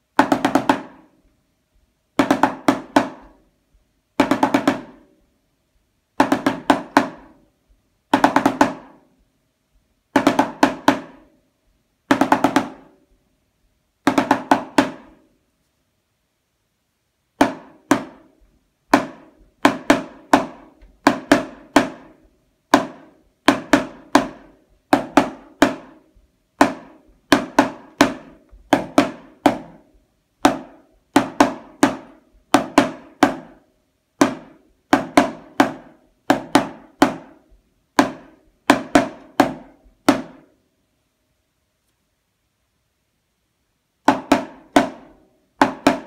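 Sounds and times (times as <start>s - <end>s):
snare drum played with sticks: 0.0s - 1.3s, 2.1s - 3.5s, 4.1s - 5.2s, 6.1s - 7.5s, 8.1s - 9.2s, 10.1s - 11.4s, 12.1s - 13.1s, 14.0s - 15.3s, 17.4s - 40.6s, 44.0s - 46.0s.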